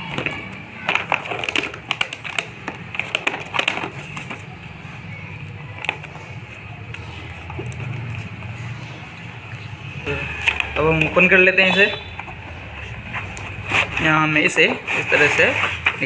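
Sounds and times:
packing tape crackling: 0.0s - 9.7s.

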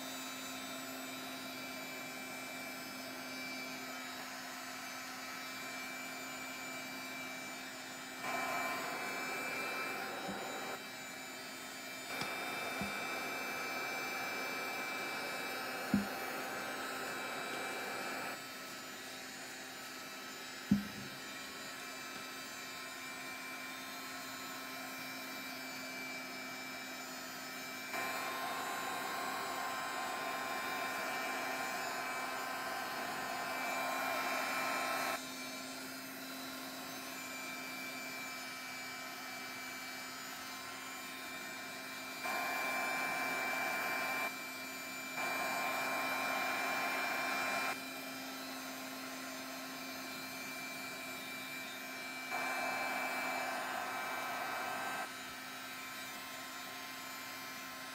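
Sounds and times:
heat gun blowing hot air: 6.8s - 19.3s, 20.0s - 23.7s, 27.8s - 35.6s, 40.8s - 47.8s, 49.2s - 56.4s.

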